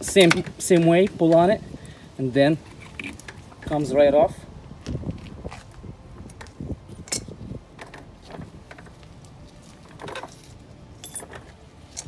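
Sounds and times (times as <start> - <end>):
metallic clicks and clinks: 10.0 - 12.0.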